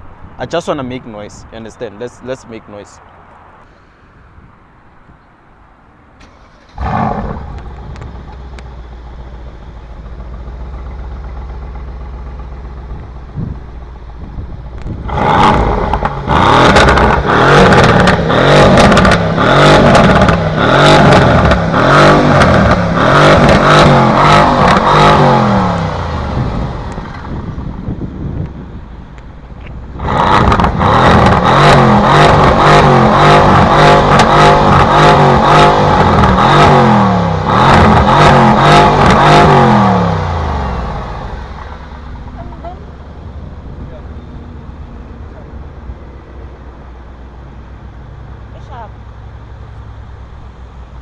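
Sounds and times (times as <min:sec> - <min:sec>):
car engine starting and revving: 0:06.1 - 0:50.8
exhaust crackles and pops: 0:06.2 - 0:42.8.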